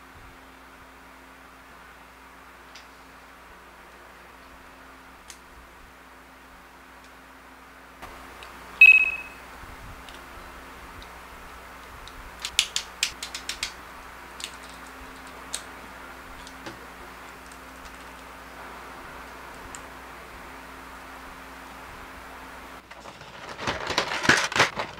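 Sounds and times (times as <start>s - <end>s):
bright ringing ping: 8.8s - 9.4s
toy robot joints clicking: 12.4s - 13.8s.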